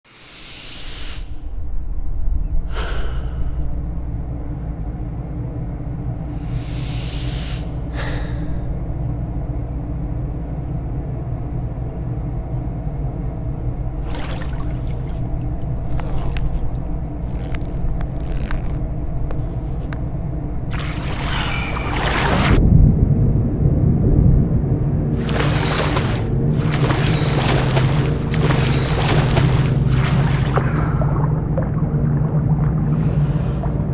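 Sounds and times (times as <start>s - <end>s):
low rumbling drone: 1.4s - 33.9s
deep breaths: 2.7s - 3.9s, 6.3s - 8.8s
irregular crackling: 14.1s - 20.1s.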